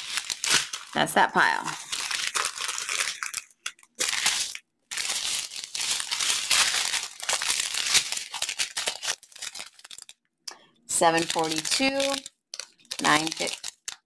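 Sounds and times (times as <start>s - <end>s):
plastic bags crinkling: 0.0s - 10.2s, 10.9s - 14.0s.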